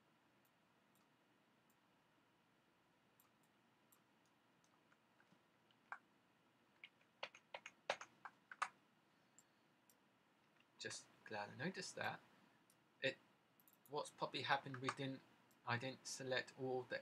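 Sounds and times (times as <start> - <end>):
mouse and keyboard clicks: 6.8 - 8.8, 14.6 - 15.1.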